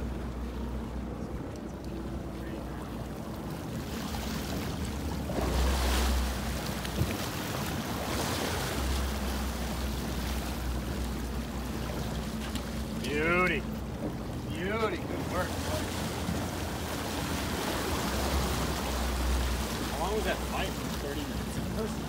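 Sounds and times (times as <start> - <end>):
low engine rumble: 0.0 - 22.0
water rushing along a hull: 0.0 - 22.0
wind on microphone: 6.7 - 8.2.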